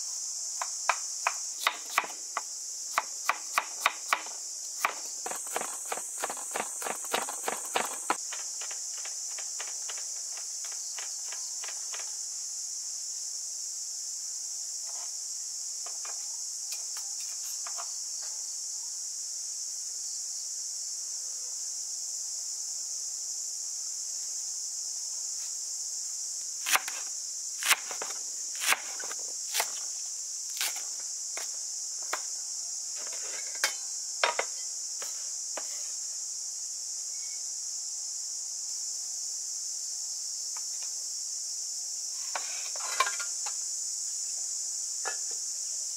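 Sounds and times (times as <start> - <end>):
insects droning: 0.0 - 45.9
cleaver chopping on wooden board: 0.9 - 10.0, 26.7 - 27.0, 27.6 - 29.8.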